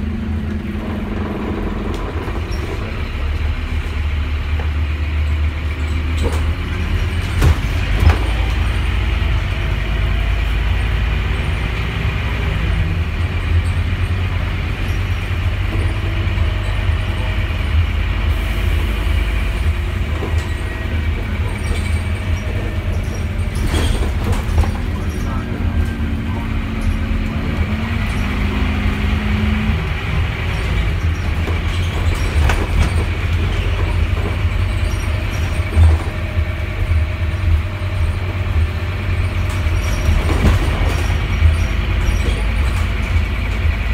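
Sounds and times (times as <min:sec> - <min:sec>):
bus engine and road rumble: 0:00.0 - 0:43.9
sharp knocks over bumps: 0:06.1 - 0:08.9.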